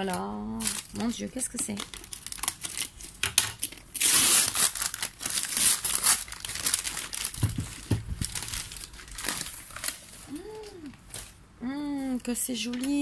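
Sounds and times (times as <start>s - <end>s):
packaging crumpling and rustling: 0.5s - 11.4s
dull knocks: 7.3s - 8.5s.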